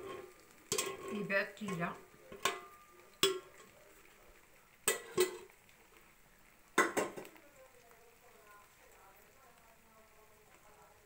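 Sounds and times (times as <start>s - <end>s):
metal kitchenware knocking: 0.0s - 3.5s, 4.9s - 5.5s, 6.8s - 7.3s.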